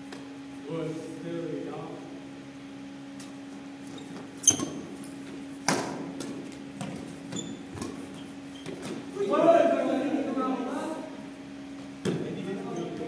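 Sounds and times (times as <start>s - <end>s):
steady low hum: 0.0s - 13.0s
rackets hitting shuttlecock: 5.6s - 7.1s.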